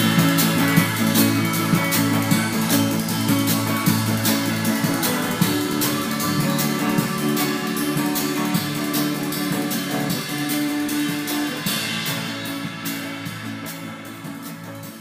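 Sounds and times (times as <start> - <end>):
song with guitar and drums: 0.0 - 15.0.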